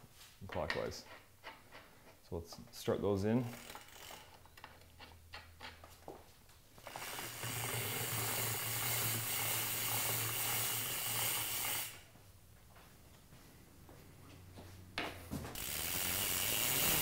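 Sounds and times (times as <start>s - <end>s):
bicycle freehub ratcheting: 3.4s - 5.8s, 6.8s - 12.1s, 15.6s - 17.0s.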